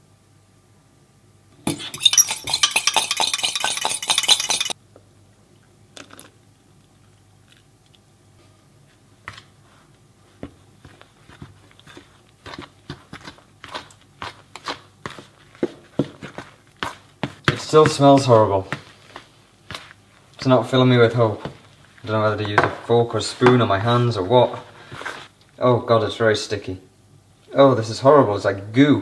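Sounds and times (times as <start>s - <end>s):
fork whisking in glass jug: 1.6s - 4.8s
fork scraping plastic bowl: 1.7s - 4.8s.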